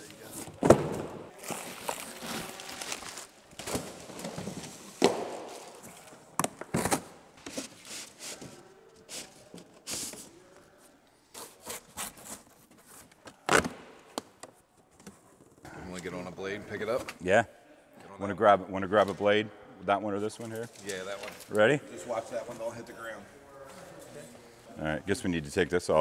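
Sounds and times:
packaging scraping and rubbing: 0:01.4 - 0:05.0.

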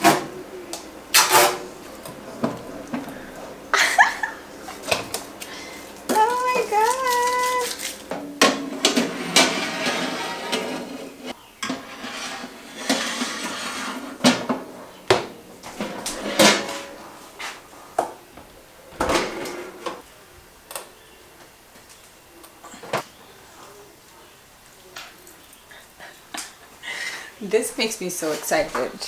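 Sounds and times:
oven trays clanking and scraping: 0:08.2 - 0:17.6, 0:19.0 - 0:20.0.

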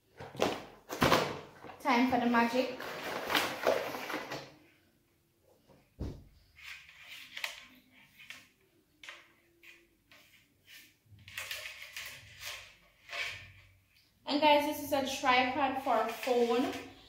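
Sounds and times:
rustles and scrapes: 0:16.0 - 0:17.0.

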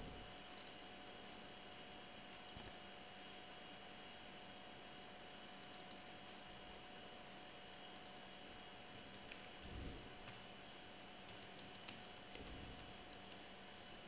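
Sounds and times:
computer mouse clicks: 0:00.6 - 0:00.8, 0:02.5 - 0:02.9, 0:05.6 - 0:06.1, 0:07.9 - 0:10.4, 0:11.2 - 0:14.0.

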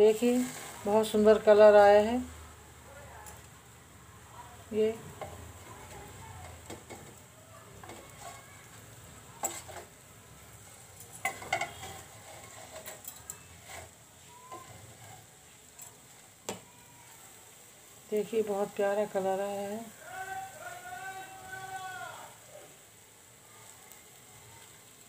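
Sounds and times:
faint steady hiss: 0:00.0 - 0:25.0
metal spatula scraping steel plate: 0:00.1 - 0:01.3, 0:07.8 - 0:08.8, 0:09.4 - 0:16.1.

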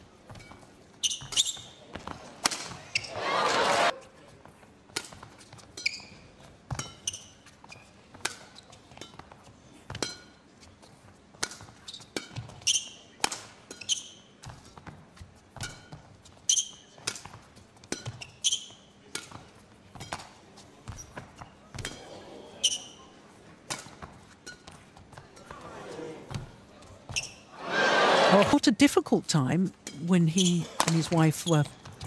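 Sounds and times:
shoes squeaking on court: 0:00.2 - 0:03.9, 0:05.0 - 0:27.5, 0:29.9 - 0:32.0
racket striking shuttlecock: 0:02.4 - 0:02.8, 0:11.4 - 0:12.5, 0:16.6 - 0:18.2.

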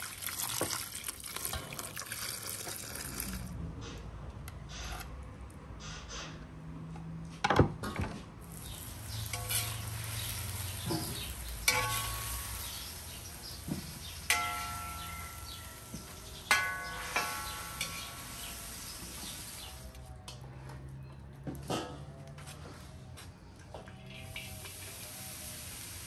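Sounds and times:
meat sizzling in a pan: 0:08.5 - 0:14.3, 0:17.0 - 0:19.8, 0:24.4 - 0:26.0
metal ladle scraping steel bowl: 0:08.6 - 0:13.2, 0:16.8 - 0:18.5.

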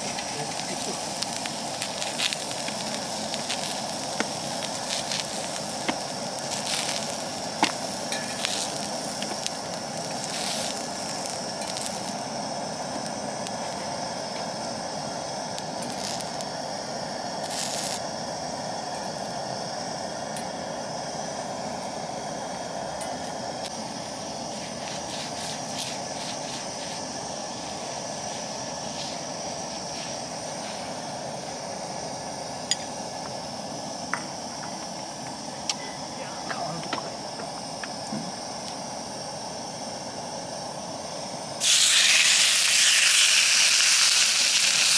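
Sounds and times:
gas burner rushing: 0:00.0 - 0:44.9
oil sizzling on a hot iron plate: 0:00.0 - 0:44.9.

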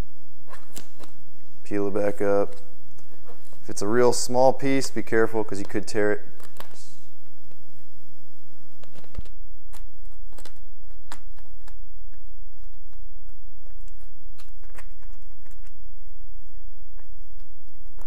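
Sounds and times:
low steady hum: 0:00.0 - 0:18.0
vinyl film crackling: 0:08.6 - 0:18.0.

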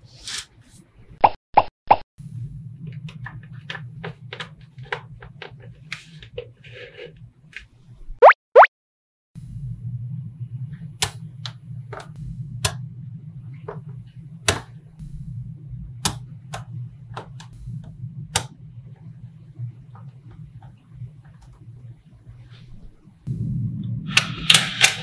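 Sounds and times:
low hum: 0:02.2 - 0:06.0, 0:09.4 - 0:25.0.

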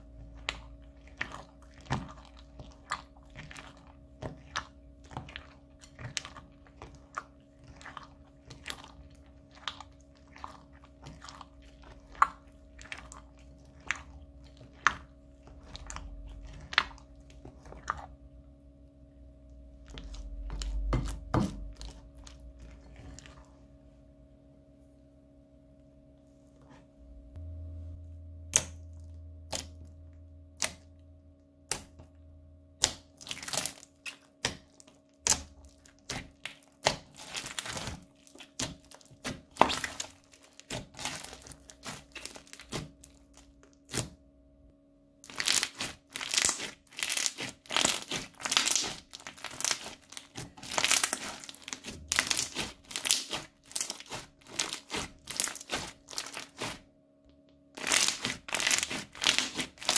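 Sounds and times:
beaded slime crackling and popping: 0:32.8 - 0:44.1, 0:45.2 - 0:56.8, 0:57.8 - 0:59.9.

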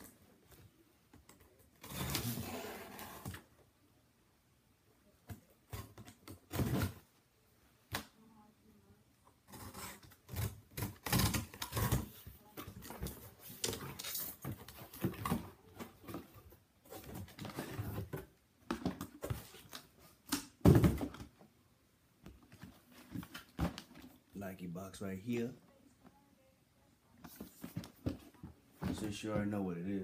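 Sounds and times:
box thump: 0:20.6 - 0:21.3.

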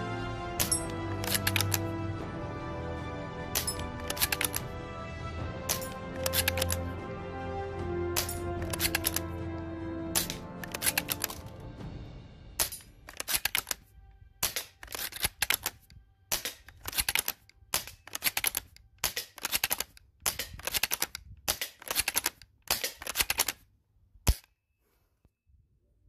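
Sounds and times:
rifle mechanism ratcheting clicks: 0:00.6 - 0:01.9, 0:03.6 - 0:04.7, 0:05.7 - 0:06.8, 0:08.2 - 0:09.3, 0:10.2 - 0:11.5, 0:12.6 - 0:13.8, 0:14.4 - 0:23.6.

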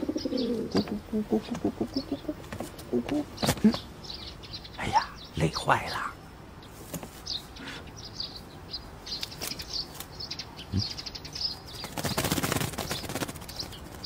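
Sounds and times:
pigeon wings flapping: 0:11.7 - 0:14.0.

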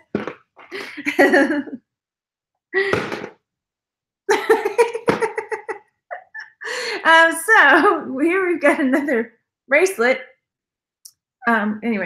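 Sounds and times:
woman's voice: 0:04.3 - 0:10.3, 0:11.4 - 0:12.0.

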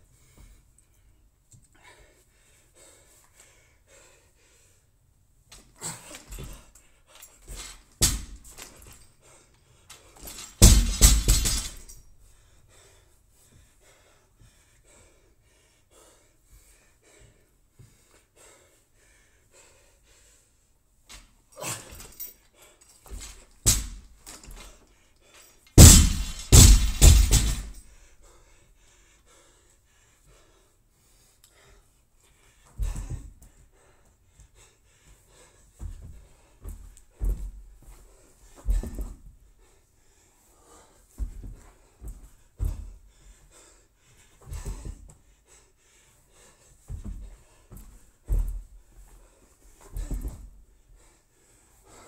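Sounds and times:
person panting heavily: 0:01.7 - 0:05.0, 0:09.0 - 0:20.7, 0:21.5 - 0:52.0
weight plates rattling: 0:10.2 - 0:11.9, 0:25.8 - 0:27.8
barbell crashing on rubber floor: 0:10.6 - 0:11.8, 0:25.8 - 0:27.8.

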